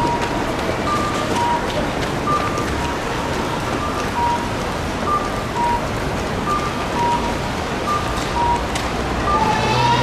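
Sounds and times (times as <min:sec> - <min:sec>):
outdoor noise haze: 0:00.0 - 0:10.0
crossing signal chirping: 0:03.7 - 0:10.0.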